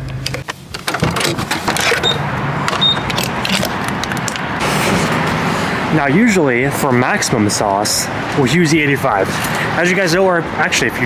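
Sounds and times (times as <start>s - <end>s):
fuel pump electronic beeps: 2.0s - 3.2s.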